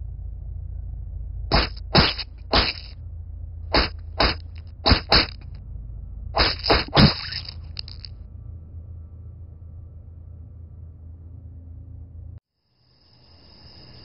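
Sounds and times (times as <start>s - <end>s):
steady low hum: 0.0s - 14.0s
sharp slashing strokes: 1.5s - 3.0s, 3.7s - 5.4s, 6.4s - 8.1s.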